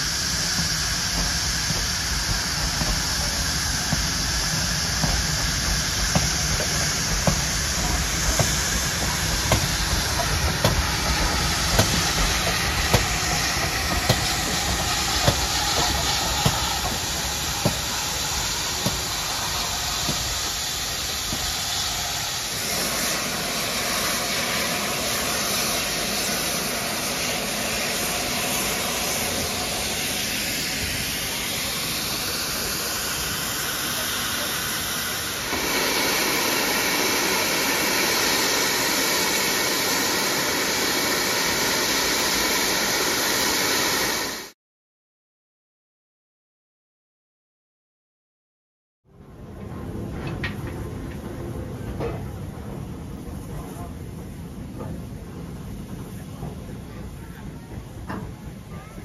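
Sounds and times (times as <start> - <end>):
train wheels clicking over rail joints: 0.0 - 42.5, 49.6 - 58.7
steam hiss: 0.0 - 44.6.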